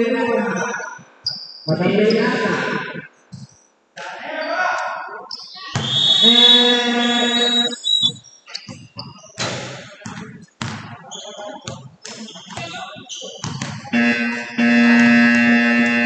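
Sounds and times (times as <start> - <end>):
shoe squeaks on court: 5.3 - 9.7, 11.1 - 13.9
basketball bouncing: 5.7 - 6.0, 8.1 - 11.0, 12.5 - 16.0.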